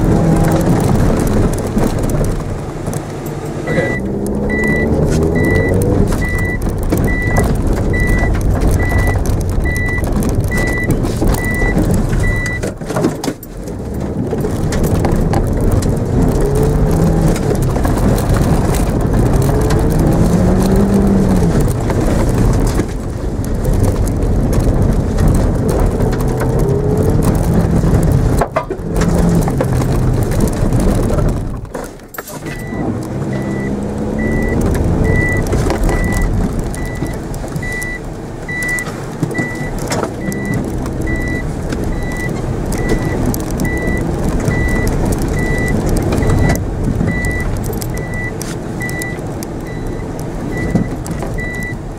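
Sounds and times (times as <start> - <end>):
car engine revving: 0.0 - 51.9
tyre and body noise: 0.0 - 51.9
high beep: 3.7 - 7.4.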